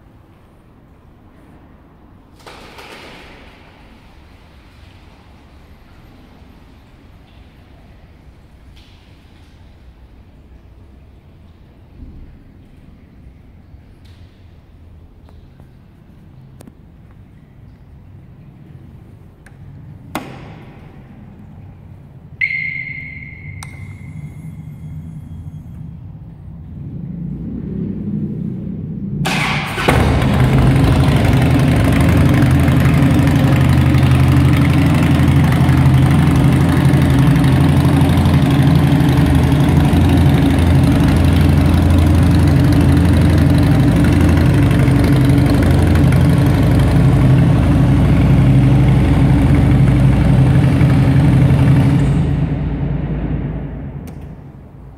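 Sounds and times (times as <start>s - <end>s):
brief ringing tone: 22.4s - 26.1s
motorcycle engine idling: 29.8s - 52.5s.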